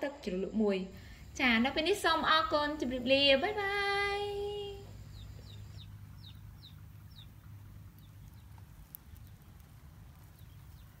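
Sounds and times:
faint low rumble: 0.0 - 11.0
bird chirping: 2.7 - 11.0.

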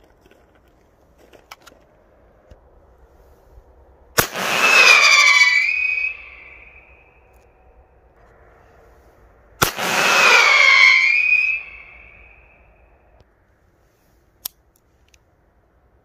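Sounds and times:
pyrotechnic cartridge whistling: 4.2 - 7.3, 9.6 - 12.8.

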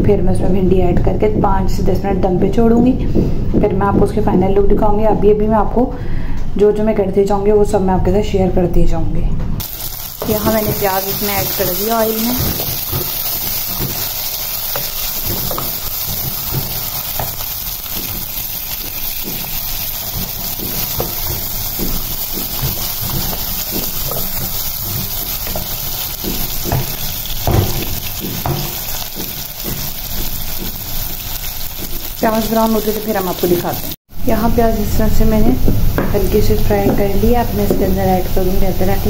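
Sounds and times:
onions sizzling in hot oil: 9.6 - 34.0, 36.2 - 39.0.

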